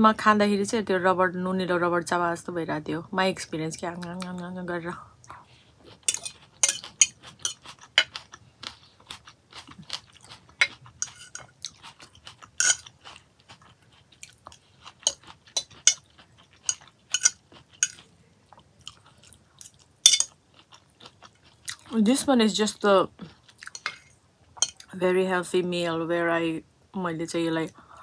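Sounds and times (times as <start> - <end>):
chewing crunchy salad: 5.8 - 22.0, 23.2 - 24.9.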